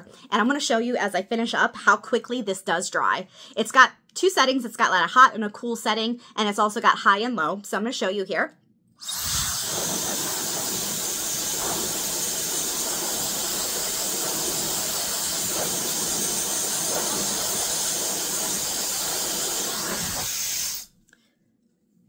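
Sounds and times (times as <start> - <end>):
hair dryer blowing: 9.0 - 20.9.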